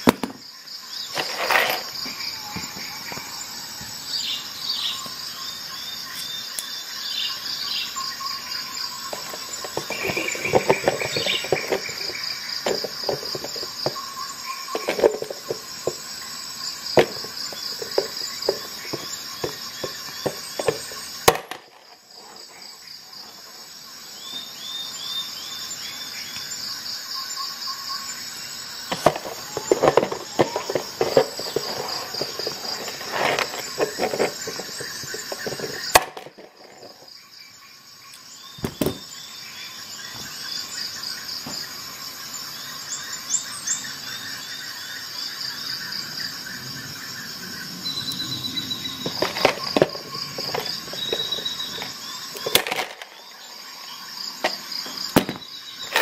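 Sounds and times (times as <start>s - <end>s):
metal pieces rattling on plastic: 9.1s - 14.0s, 14.7s - 16.0s, 28.9s - 37.0s, 49.0s - 53.2s.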